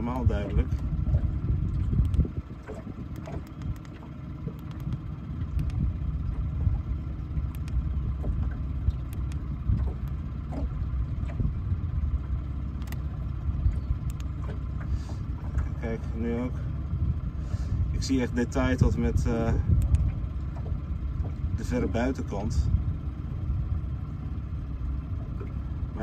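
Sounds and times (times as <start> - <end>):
boat engine rumble: 0.0 - 26.0
light clicks: 2.0 - 2.3, 3.1 - 5.8, 7.5 - 7.8, 12.8 - 13.1, 13.7 - 14.6, 19.8 - 20.1.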